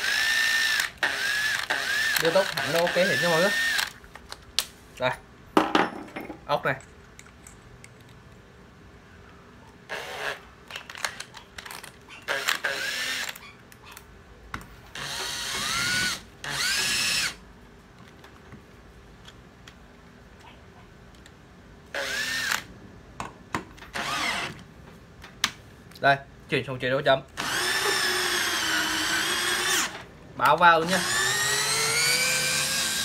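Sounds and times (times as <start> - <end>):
cordless drill whining: 0.0 - 4.0, 9.9 - 10.4, 12.3 - 13.4, 15.0 - 17.4, 22.0 - 22.6, 23.9 - 24.6, 27.4 - 30.0, 30.8 - 33.0.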